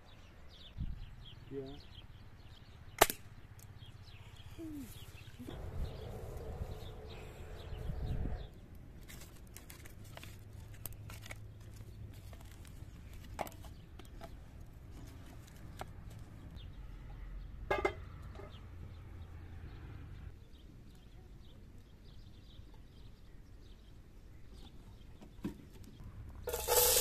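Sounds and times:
low rumble: 5.4 - 8.6.

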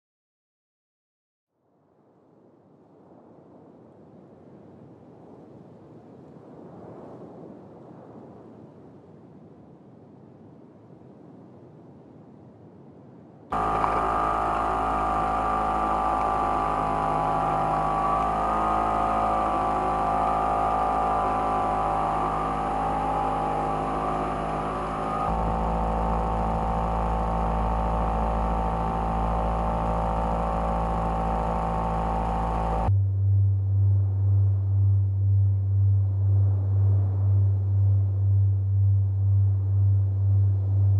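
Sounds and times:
boat engine humming: 13.5 - 40.9.

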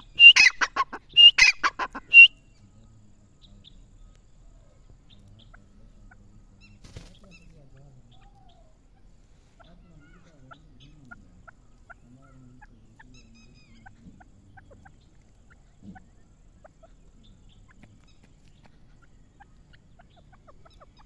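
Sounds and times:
short chirps: 0.0 - 2.6
soft fowl-like calls: 0.0 - 21.0.

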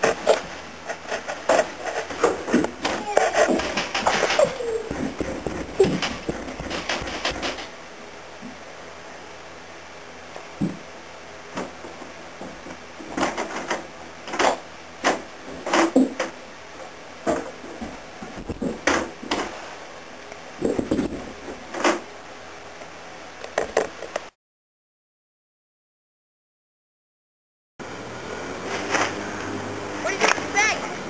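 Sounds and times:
sharp knocks and clicks: 0.0 - 7.7.

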